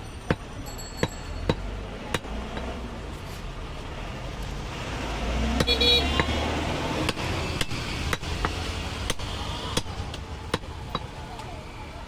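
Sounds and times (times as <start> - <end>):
low traffic rumble: 0.0 - 12.0
cleaver chopping meat on wood: 0.3 - 2.8, 5.5 - 11.1
vehicle horn toot: 5.6 - 6.3.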